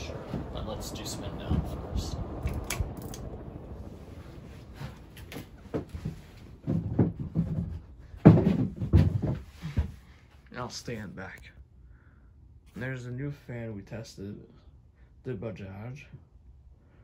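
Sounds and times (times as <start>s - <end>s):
ceiling fan hum: 0.0s - 17.0s
ceiling fan pull chain click: 2.4s - 3.4s
loud knocks and thumps: 5.3s - 10.0s.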